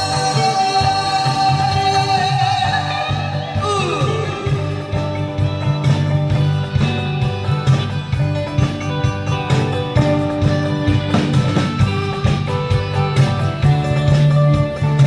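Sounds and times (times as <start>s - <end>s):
person singing: 0.0s - 5.6s
guitar: 0.0s - 15.0s
steady beat: 0.0s - 15.0s.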